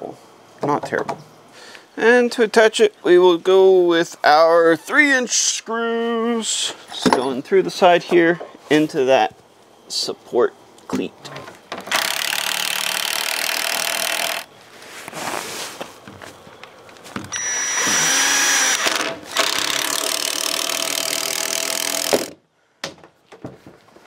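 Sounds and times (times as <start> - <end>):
impact driver driving screws: 11.8 - 14.5, 17.3 - 22.4.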